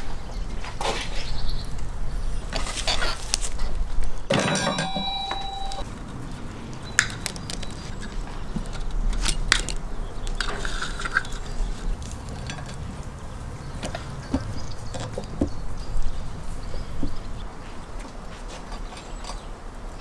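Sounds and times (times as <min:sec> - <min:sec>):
metal skewers clanking: 0:04.3 - 0:05.8.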